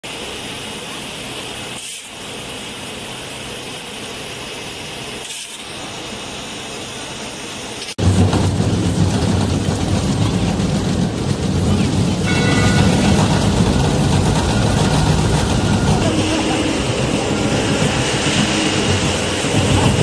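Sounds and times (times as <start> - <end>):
steady machine noise: 5.8 - 20.0.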